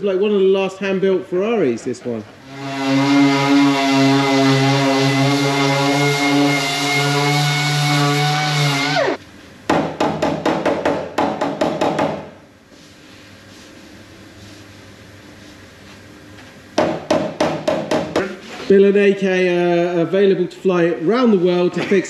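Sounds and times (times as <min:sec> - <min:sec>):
air sander whining on metal: 0:02.4 - 0:09.2.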